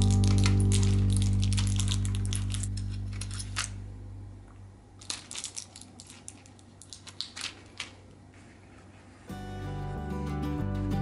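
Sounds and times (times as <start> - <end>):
blister packs crinkling: 0.0 - 3.8, 5.0 - 9.2.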